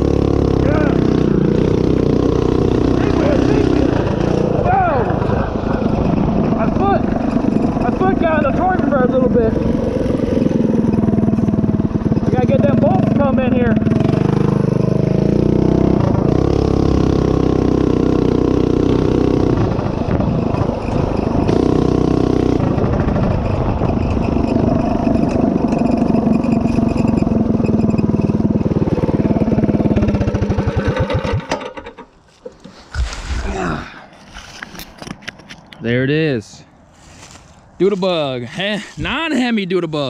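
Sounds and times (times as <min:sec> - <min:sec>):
mini bike engine running hard: 0:00.0 - 0:32.0.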